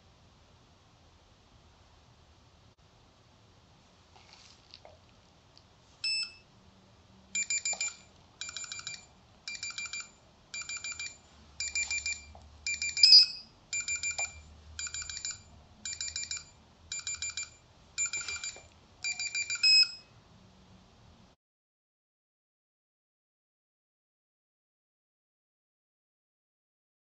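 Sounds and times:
rapid high electronic beeps: 7.4 - 20.1.

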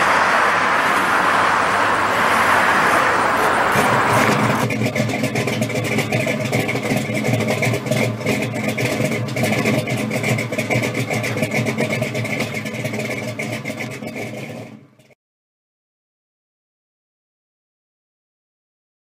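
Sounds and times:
car engine pulsing: 0.0 - 15.1.

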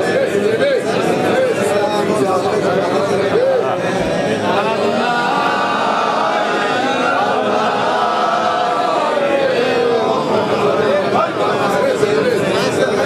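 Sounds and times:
men chanting together: 4.3 - 12.2.

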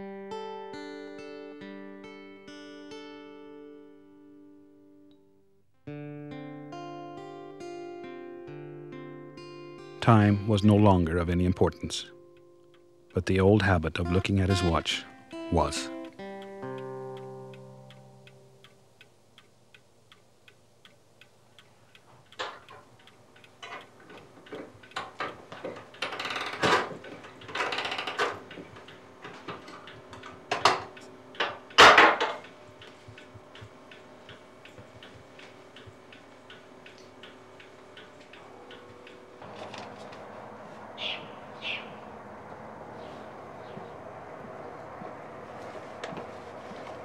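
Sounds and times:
clock ticking: 10.7 - 25.3, 27.4 - 39.4
clicks knocks and rattling: 23.6 - 32.4.

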